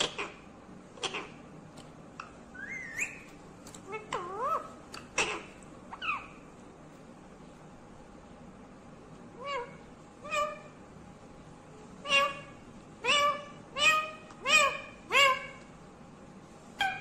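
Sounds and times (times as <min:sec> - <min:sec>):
parakeet calling: 0:00.0 - 0:01.5, 0:02.2 - 0:06.5, 0:09.4 - 0:10.8, 0:12.0 - 0:15.7, 0:16.8 - 0:17.0.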